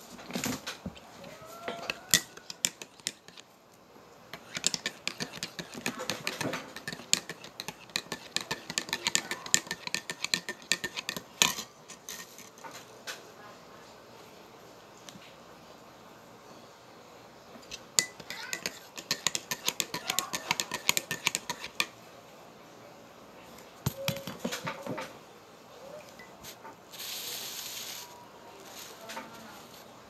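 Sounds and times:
teaspoon clinking in ceramic mug: 0:01.8 - 0:03.4, 0:04.4 - 0:11.6, 0:18.0 - 0:21.7.

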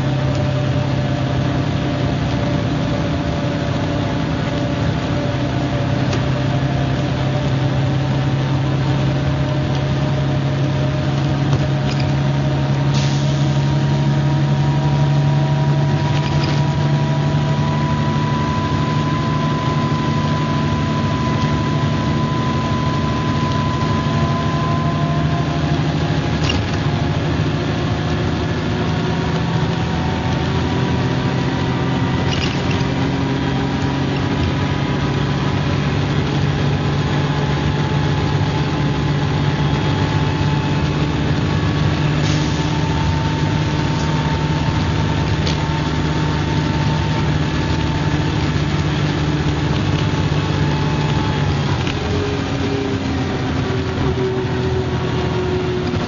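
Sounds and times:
bus engine running: 0:00.0 - 0:56.0
faint engine whine: 0:00.0 - 0:56.0.

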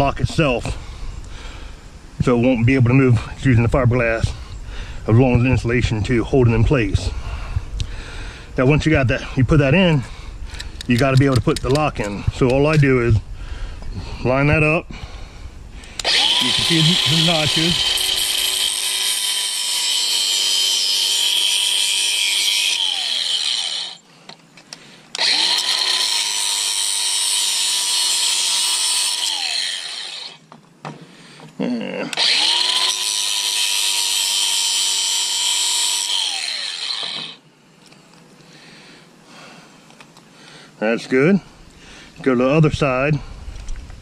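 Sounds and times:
angle grinder cutting plastic pipe: 0:15.9 - 0:24.0, 0:25.2 - 0:30.4, 0:32.1 - 0:37.4.

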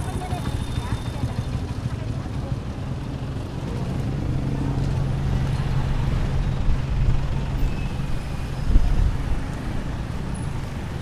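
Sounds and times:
engine rumble: 0:00.0 - 0:11.0.

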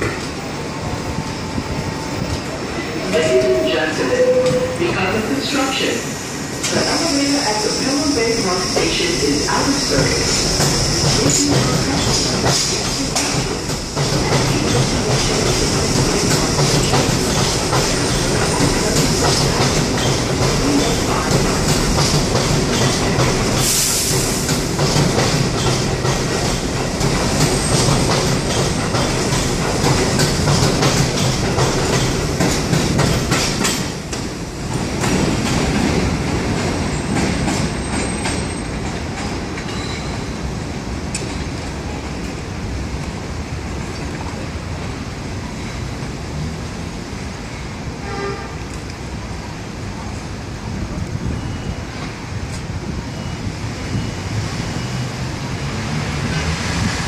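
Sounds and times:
train rolling past: 0:00.0 - 0:57.0
wheels clacking over rail joints: 0:10.4 - 0:40.2.

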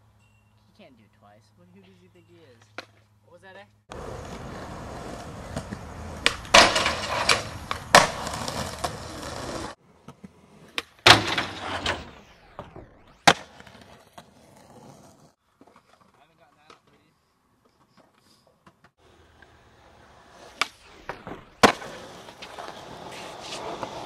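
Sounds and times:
skateboard wheels rolling on concrete: 0:03.9 - 0:24.0
skateboard clacking on ground: 0:05.4 - 0:11.6.

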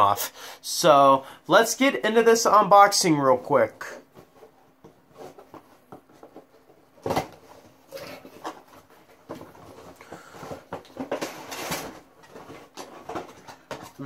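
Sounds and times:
cardboard box rustling and scraping: 0:04.1 - 0:14.0.

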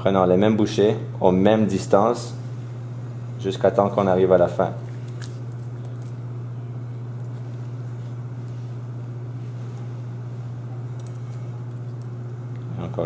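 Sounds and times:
low hum: 0:04.6 - 0:13.0.

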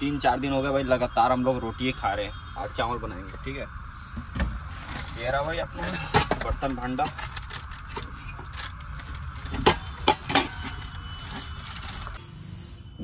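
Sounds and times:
plastic sack handled: 0:06.4 - 0:12.2.

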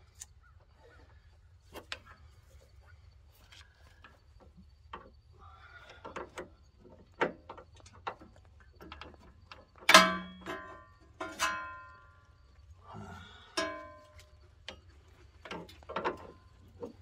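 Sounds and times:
loud ringing metallic clanks: 0:09.8 - 0:12.3, 0:13.6 - 0:14.3.

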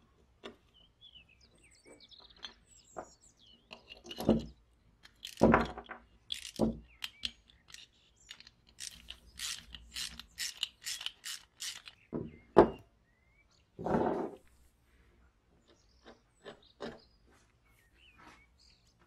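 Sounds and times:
nut driver clicking: 0:03.8 - 0:12.1.

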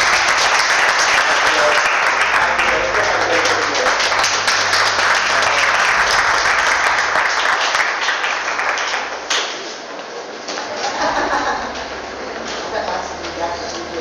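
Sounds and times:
audience applauding: 0:00.0 - 0:09.7.

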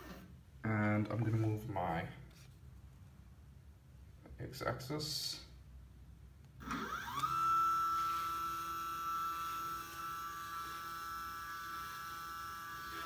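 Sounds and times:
stepper motor whine: 0:06.6 - 0:13.0.

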